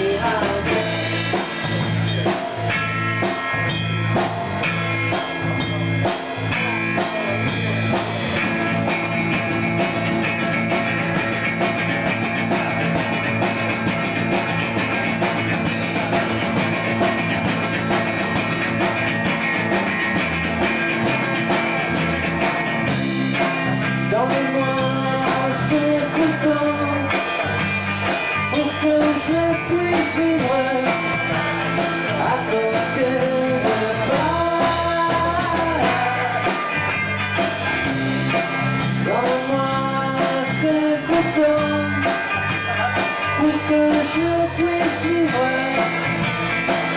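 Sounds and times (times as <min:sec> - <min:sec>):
person singing: 0:00.0 - 0:02.7, 0:23.7 - 0:27.6, 0:28.3 - 0:37.0, 0:38.9 - 0:46.2
bass guitar: 0:00.0 - 0:46.9
drum kit: 0:00.0 - 0:46.9
electric guitar: 0:00.0 - 0:46.9.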